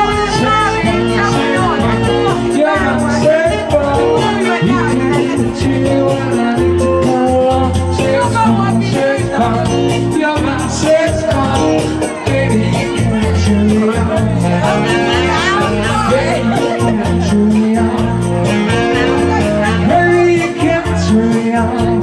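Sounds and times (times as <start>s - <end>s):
loud dance music: 0.0s - 22.0s
person singing: 0.0s - 22.0s.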